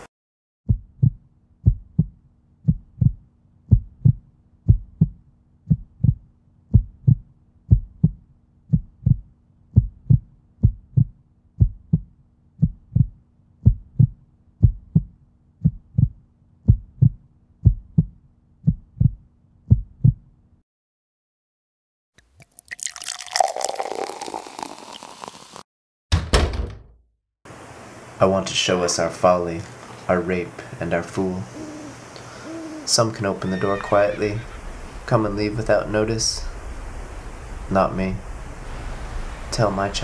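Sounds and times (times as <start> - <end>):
heartbeat thumps: 0.7 - 20.3
faint steady hum: 27.5 - 40.0.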